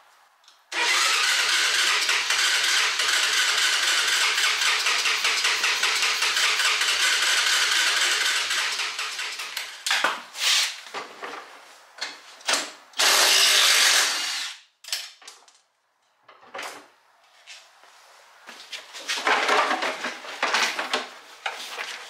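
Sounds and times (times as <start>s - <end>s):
electric starter cranking engine: 0.7s - 9.7s, 13.0s - 14.6s.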